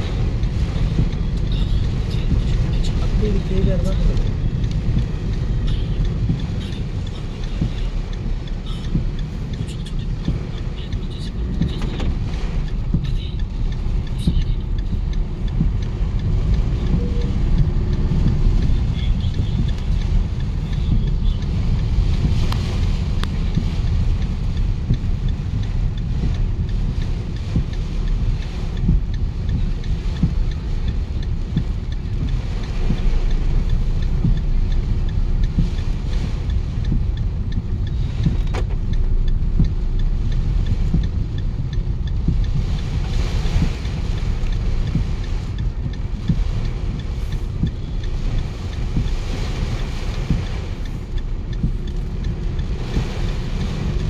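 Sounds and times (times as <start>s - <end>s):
car cabin rumble in heavy rain: 0.0s - 54.0s.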